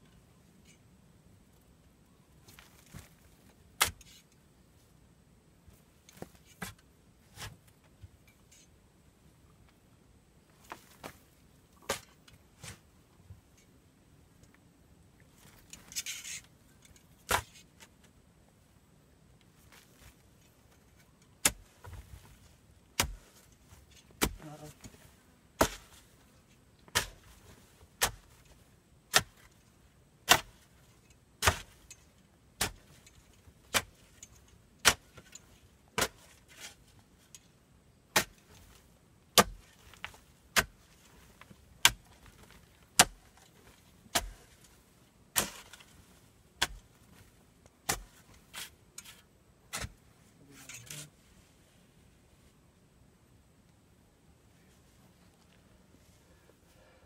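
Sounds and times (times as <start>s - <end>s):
pickaxe striking soil and rock: 2.4s - 4.3s, 6.0s - 7.7s, 10.6s - 12.9s, 15.3s - 18.1s, 19.6s - 50.0s
pickaxe scrape: 3.8s - 4.3s, 15.4s - 17.9s, 19.7s - 22.1s, 23.0s - 26.2s, 26.9s - 29.6s, 30.3s - 37.5s, 38.2s - 38.8s, 39.4s - 46.0s, 46.6s - 47.3s, 47.9s - 51.1s.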